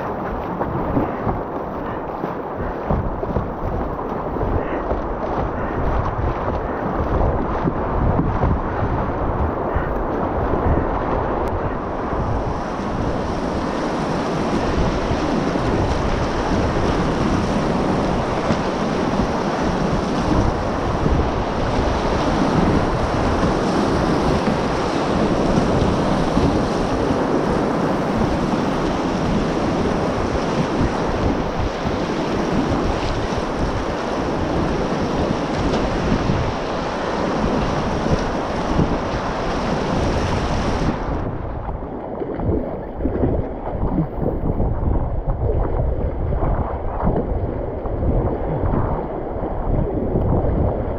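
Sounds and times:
whitewater rapids rushing: 0.0s - 41.3s
paddle strokes splashing: 0.0s - 50.9s
wind buffeting microphone: 0.0s - 50.9s.

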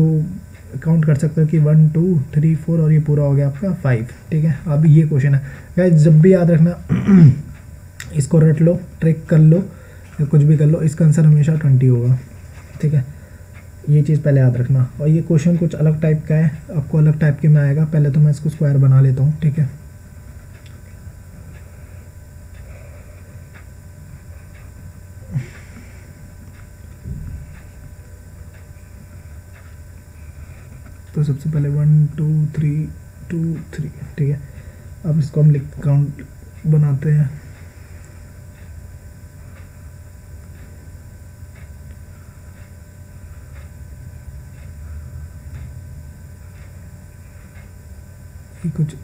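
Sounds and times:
low background hum: 0.0s - 49.0s
low thump: 27.0s - 27.5s.

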